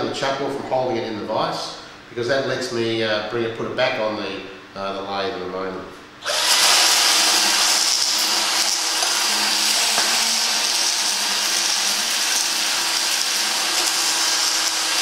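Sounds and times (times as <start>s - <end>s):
power drill sanding stone: 6.2s - 15.0s.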